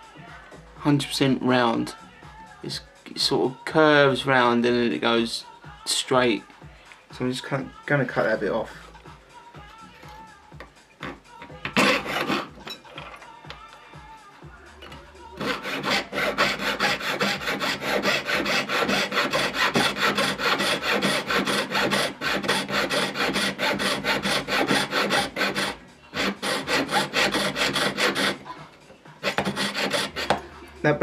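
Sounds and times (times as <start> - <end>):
saw rasping through metal: 11.7 - 12.6, 15.4 - 28.5, 29.2 - 30.4.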